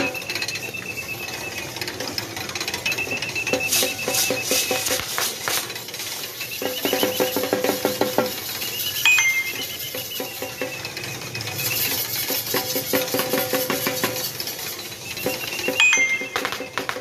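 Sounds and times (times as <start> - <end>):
harness bells jingling: 0.0 - 12.2, 13.9 - 17.0
faint high squeal: 8.4 - 12.3, 14.6 - 16.8.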